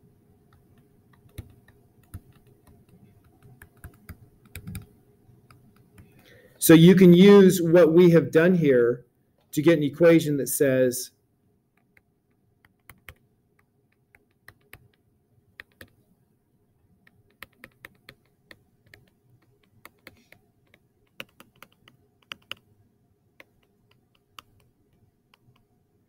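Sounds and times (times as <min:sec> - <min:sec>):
stylus tapping tablet screen: 0:00.5 - 0:06.2, 0:11.8 - 0:15.0, 0:15.6 - 0:16.0, 0:17.0 - 0:22.7, 0:23.4 - 0:25.7.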